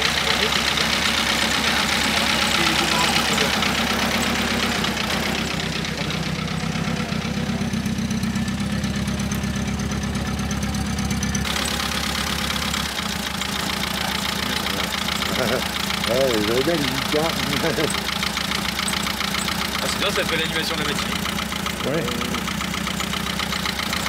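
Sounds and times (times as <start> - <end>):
car engine idling: 0.0 - 24.0.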